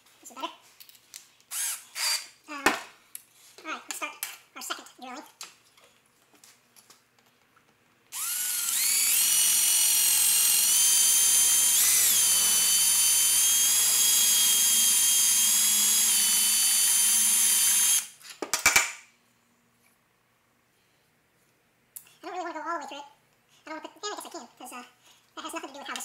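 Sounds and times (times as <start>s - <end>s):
cordless drill whining: 1.5s - 2.3s, 8.1s - 18.1s.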